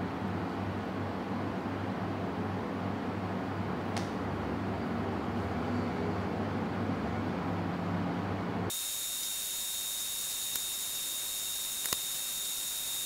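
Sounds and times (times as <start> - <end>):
low background hum: 0.0 - 8.7
steady high hiss: 8.7 - 13.0
thin high-pitched whine: 8.7 - 13.0.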